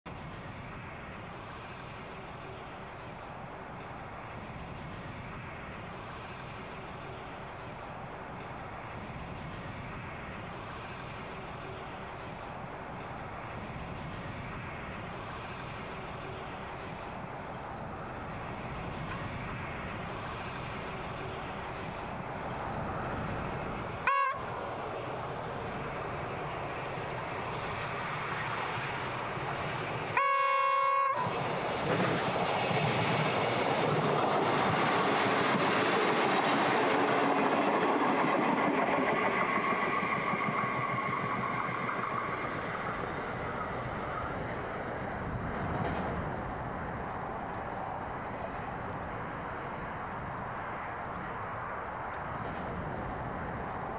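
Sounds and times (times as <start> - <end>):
diesel railcar running past: 0.1 - 53.9
train horn: 24.0 - 24.5, 30.2 - 31.3.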